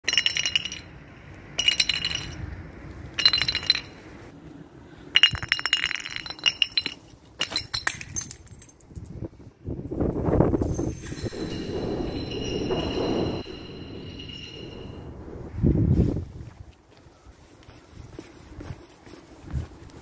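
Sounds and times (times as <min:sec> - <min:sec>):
glass clinking and tinkling: 0:00.0 - 0:01.0, 0:01.6 - 0:02.4, 0:03.2 - 0:04.0, 0:05.2 - 0:09.2, 0:10.2 - 0:15.0.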